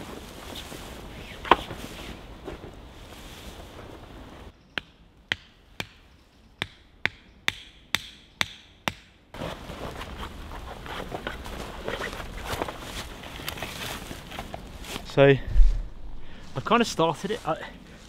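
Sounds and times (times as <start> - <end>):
tent fabric rustling: 0.0 - 4.5, 9.4 - 18.0
tent peg being hammered: 4.7 - 6.0, 6.6 - 9.2.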